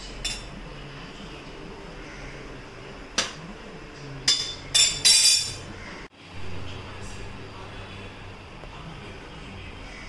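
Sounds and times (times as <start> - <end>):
cookware clinking: 0.0 - 0.6, 4.2 - 5.7.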